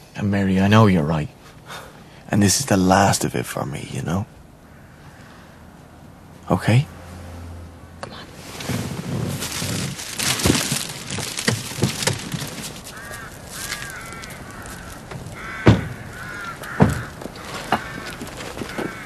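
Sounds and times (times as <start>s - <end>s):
crows cawing: 4.6s - 5.8s, 10.6s - 19.0s.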